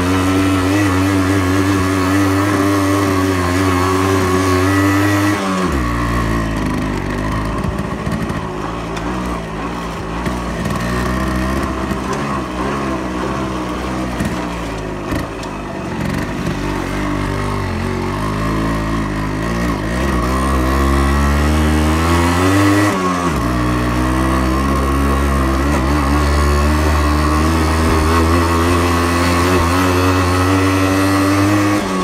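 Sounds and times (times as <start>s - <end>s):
two-stroke motorcycle engine revving: 0.0s - 32.0s.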